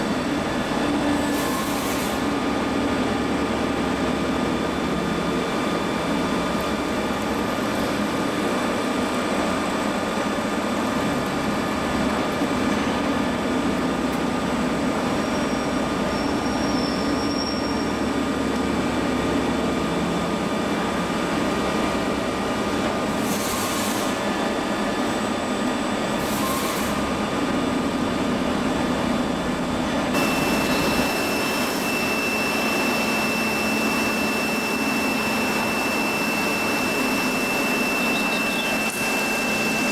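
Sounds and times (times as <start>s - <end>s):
high steady whine: 17.2s - 39.9s
thin machine whine: 19.0s - 39.9s
milling machine drone: 19.2s - 39.9s.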